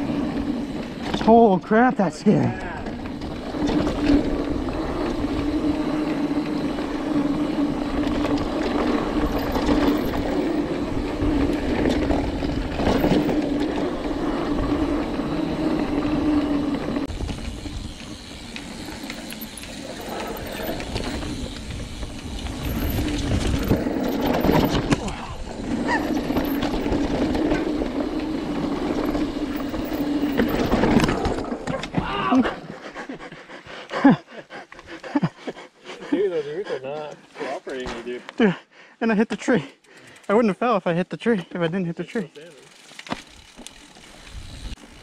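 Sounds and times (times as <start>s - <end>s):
bike rattling: 0.0s - 33.6s, 39.4s - 45.0s
bike tyre noise on dirt: 0.0s - 33.8s, 41.3s - 45.0s
wind rush on microphone: 20.4s - 25.6s.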